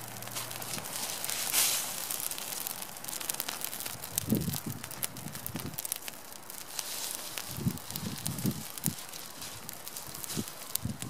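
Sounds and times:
bonfire crackling and popping: 0.0s - 11.0s.

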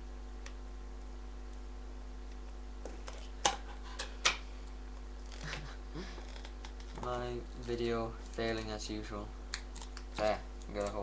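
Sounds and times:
steady low hum: 0.0s - 11.0s
sharp plastic snaps: 9.5s - 11.0s.

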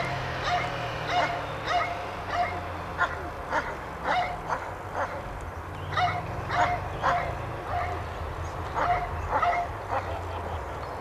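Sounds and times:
car engine hum: 0.0s - 11.0s
dog barking: 0.4s - 5.2s, 5.9s - 8.0s, 8.8s - 10.2s.

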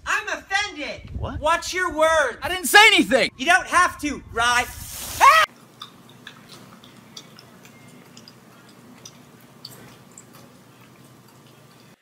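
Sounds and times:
dog chewing: 5.6s - 12.0s.

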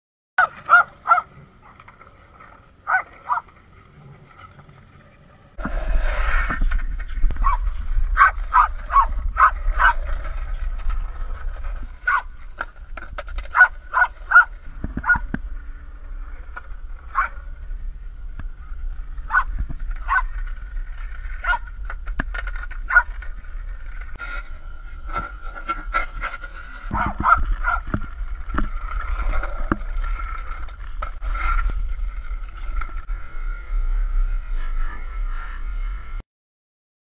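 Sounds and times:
dog barking: 0.4s - 1.3s, 2.9s - 3.5s, 7.4s - 7.6s, 8.2s - 10.0s, 12.1s - 12.3s, 13.5s - 15.3s, 17.1s - 17.4s, 19.3s - 19.5s, 20.1s - 20.3s, 21.4s - 21.7s, 22.9s - 23.1s, 26.9s - 27.9s
steady low rumble: 5.4s - 25.7s.

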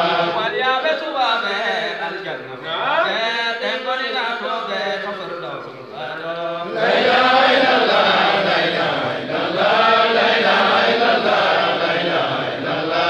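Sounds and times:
men chanting together: 0.0s - 0.5s, 6.6s - 13.0s.

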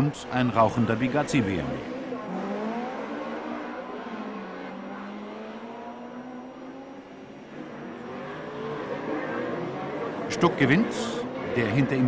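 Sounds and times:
racing car engines revving: 0.0s - 12.0s.

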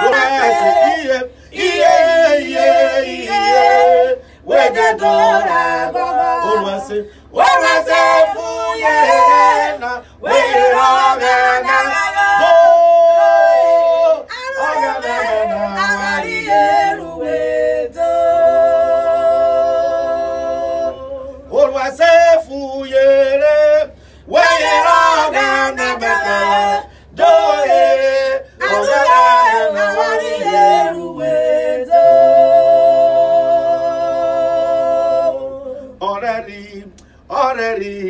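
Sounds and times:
unaccompanied gospel singing: 0.0s - 38.0s.

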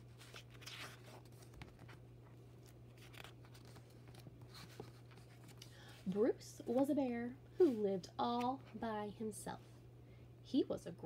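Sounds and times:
low steady hum: 0.0s - 11.0s
paper page turning: 0.1s - 5.6s.

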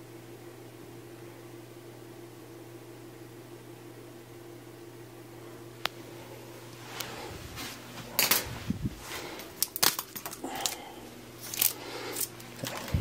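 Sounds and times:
small items clicking and rustling: 8.2s - 8.5s, 9.6s - 10.8s, 11.4s - 13.0s.

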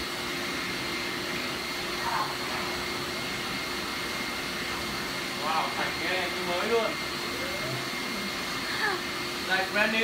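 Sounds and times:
vacuum cleaner running: 0.0s - 10.0s.

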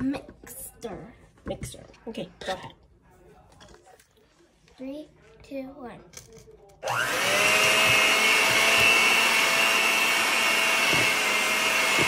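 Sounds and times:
electric hand mixer whining: 6.8s - 12.0s.

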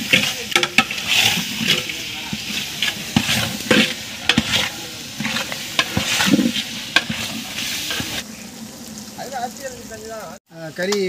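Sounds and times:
ladle scraping a metal pot: 0.0s - 8.2s
food sizzling in a pot: 0.0s - 11.0s.

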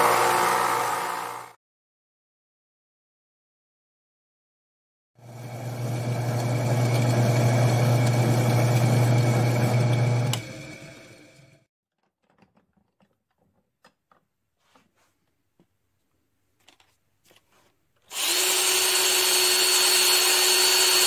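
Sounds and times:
drill press motor hum: 0.0s - 1.6s, 5.2s - 11.7s, 18.1s - 21.0s.

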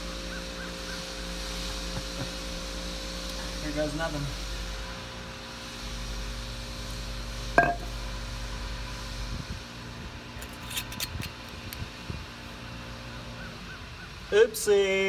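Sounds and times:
bottle knock with ring: 7.6s - 7.9s.

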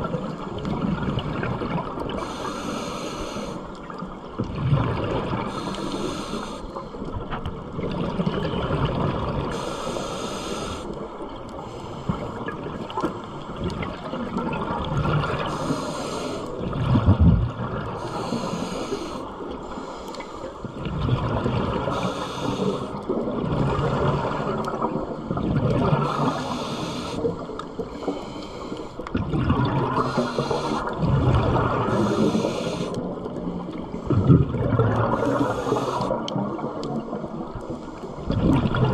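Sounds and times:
exhaled air bubbling: 0.0s - 3.2s, 3.8s - 6.5s, 7.2s - 38.9s
regulator hiss on inhale: 2.2s - 3.8s, 5.4s - 7.1s, 9.5s - 13.5s, 15.4s - 16.6s, 17.9s - 20.8s, 21.8s - 23.2s, 26.0s - 29.2s, 30.0s - 34.2s, 35.1s - 36.3s.

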